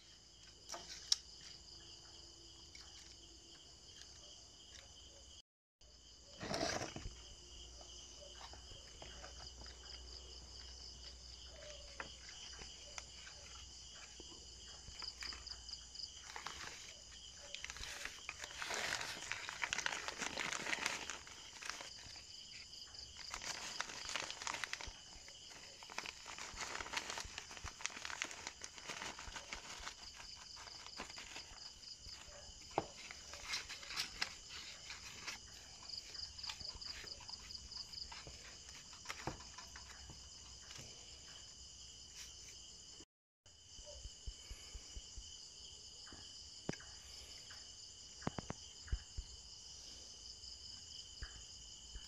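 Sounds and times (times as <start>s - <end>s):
insects chirping: 0.0s - 52.0s
potting mix rustling: 6.3s - 7.5s, 8.2s - 40.9s
plastic bag crinkling: 16.1s - 40.8s.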